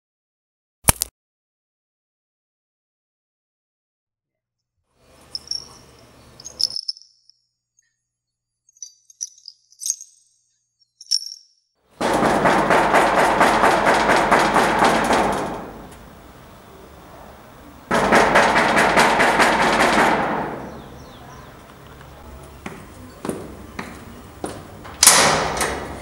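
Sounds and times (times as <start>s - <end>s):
banging on sheet-metal gate: 12.0s - 16.1s, 17.9s - 21.2s, 22.8s - 26.0s.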